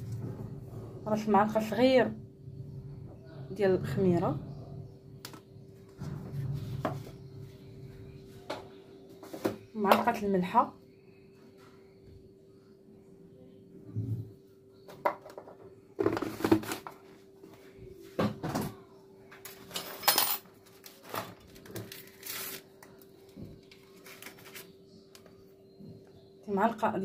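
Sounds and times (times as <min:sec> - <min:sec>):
scraping and rustling: 0:19.5 - 0:24.8.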